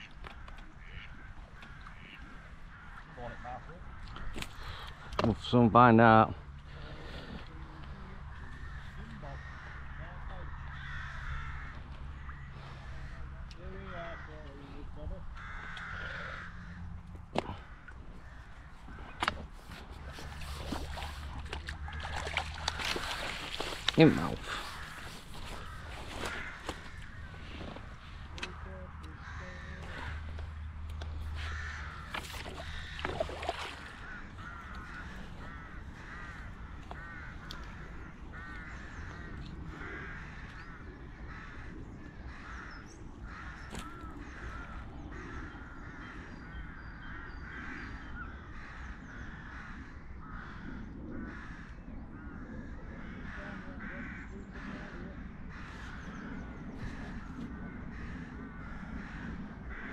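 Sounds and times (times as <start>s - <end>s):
crows cawing: 0.0s - 59.9s.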